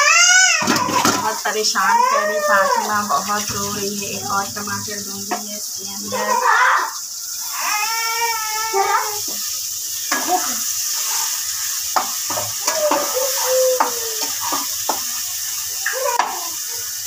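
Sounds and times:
sauce sizzling in hot oil: 0.0 - 17.0
spatula scraping metal pan: 10.1 - 15.0.

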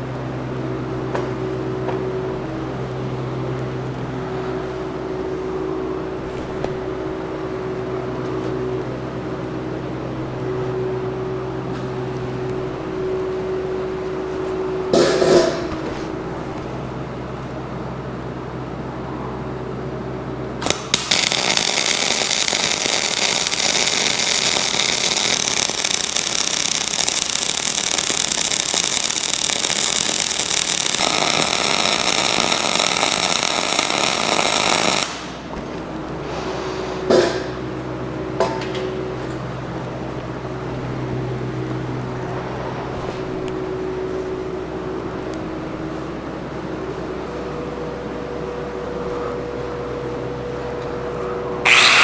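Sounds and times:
arc welding crackling hiss: 20.6 - 35.5, 51.6 - 52.0.

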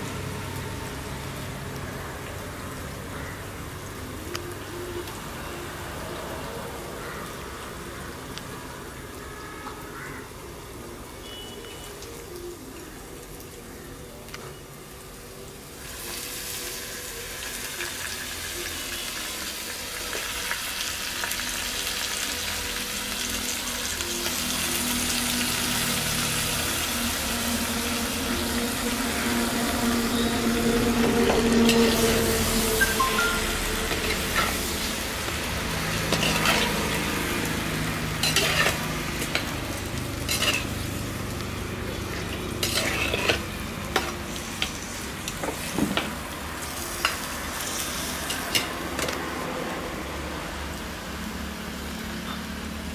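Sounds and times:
meat sizzling in a pot: 15.1 - 52.9.

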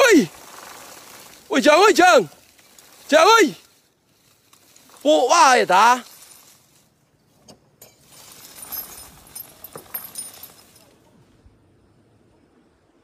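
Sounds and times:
undergrowth rustling: 0.0 - 11.4
light clinks and knocks: 5.9 - 11.0.

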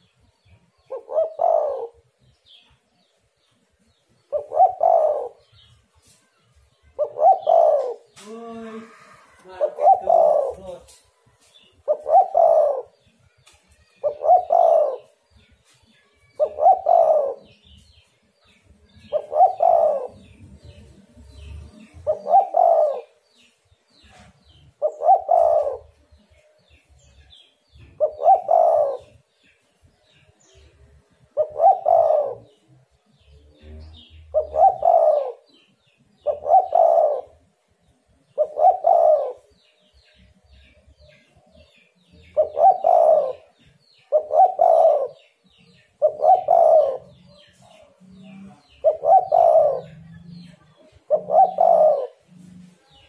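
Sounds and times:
dove cooing: 0.8 - 2.1, 4.3 - 5.7, 7.0 - 10.9, 11.8 - 13.1, 14.0 - 15.2, 16.4 - 17.8, 18.9 - 23.2, 24.8 - 26.0, 27.8 - 29.2, 31.3 - 32.6, 33.2 - 37.4, 38.2 - 39.5, 42.2 - 53.0.

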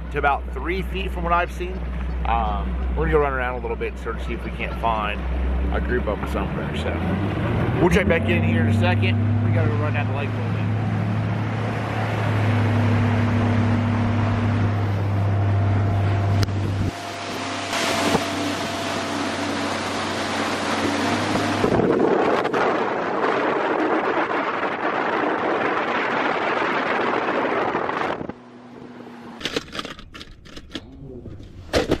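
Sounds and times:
outboard motor drone: 0.0 - 29.5
wind and water rush: 7.1 - 28.4
sharp clicks and knocks: 29.4 - 32.0.

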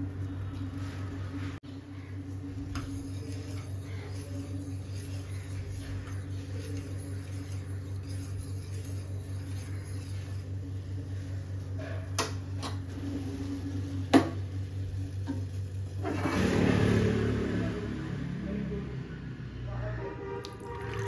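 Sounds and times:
steady low hum: 0.0 - 16.0
liquid being poured: 20.4 - 21.0.

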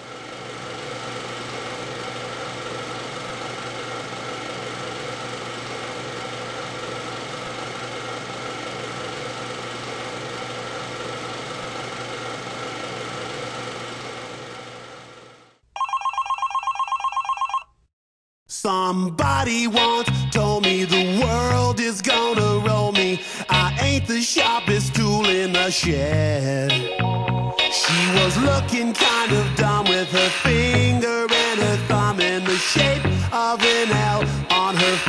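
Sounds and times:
telephone ringing: 15.7 - 17.9
steady drone with held tones: 25.0 - 35.0.

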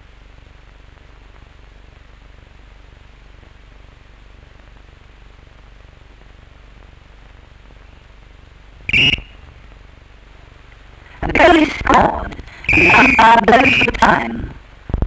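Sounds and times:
whistle blasts: 8.9 - 9.4, 12.6 - 14.0.

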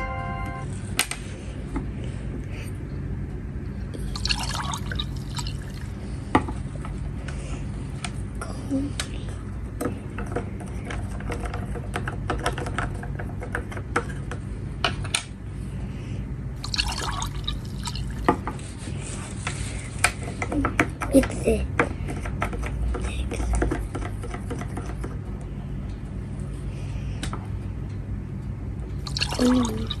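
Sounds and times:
liquid swishing: 4.0 - 6.0, 16.6 - 18.5, 29.0 - 30.0
water pouring into plastic cup: 4.0 - 6.0, 16.6 - 18.4, 29.0 - 30.0.

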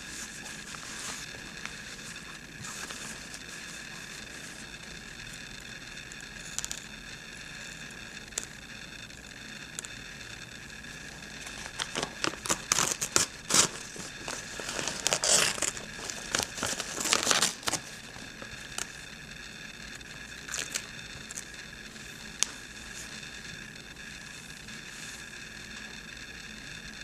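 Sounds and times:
fabric crinkling and rustling: 0.0 - 4.7, 11.2 - 18.9
crisp crackles and ticks: 0.0 - 19.2, 19.9 - 23.6.

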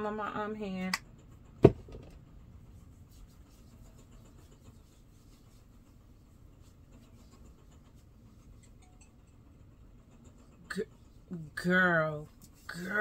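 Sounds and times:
faint room hum: 0.0 - 13.0
hands rubbing cream into skin: 2.8 - 8.6.

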